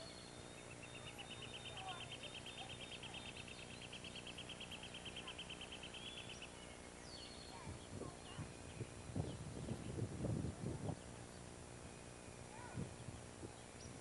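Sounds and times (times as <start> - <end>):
bird trilling: 0.0 - 10.0
bird chirps: 0.0 - 10.1, 10.8 - 14.0.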